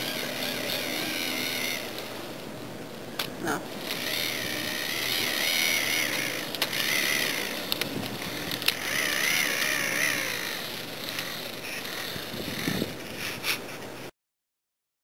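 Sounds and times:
small electric motor whining: 0.0s - 13.8s
sharp clicks: 5.0s - 10.4s.

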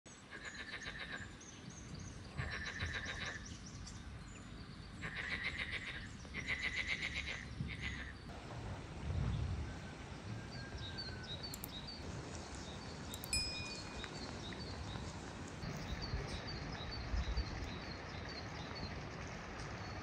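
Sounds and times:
frogs croaking: 2.3s - 3.4s, 5.0s - 8.3s.

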